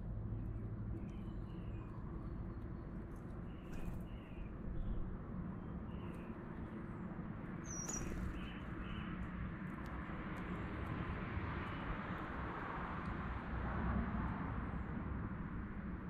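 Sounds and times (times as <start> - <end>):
songbirds chirping: 0.3 - 9.3.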